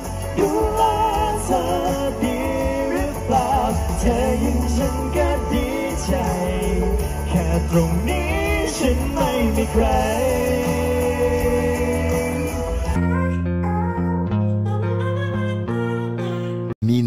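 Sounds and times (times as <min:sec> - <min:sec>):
men singing pop song: 0:00.0 - 0:13.0
steady bass: 0:00.0 - 0:13.3.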